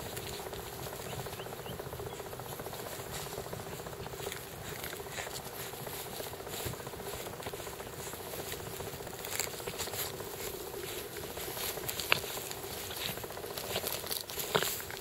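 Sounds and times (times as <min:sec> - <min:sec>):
puppy gnawing a dry husk: 0:00.0 - 0:15.0
scratchy crackles and clicks: 0:00.0 - 0:15.0
steady low hum: 0:00.0 - 0:15.0.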